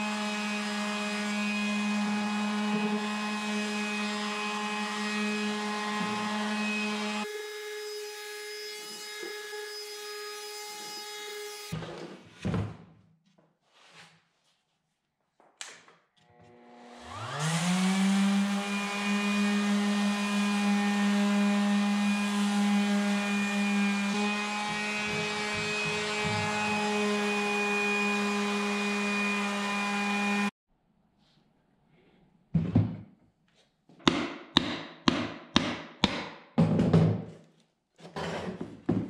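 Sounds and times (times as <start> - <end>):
orbital sander whining: 16.4 - 30.5.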